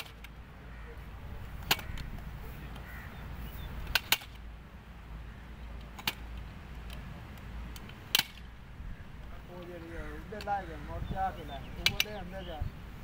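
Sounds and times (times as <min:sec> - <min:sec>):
ladder sections clicking into place: 0:03.9 - 0:04.4.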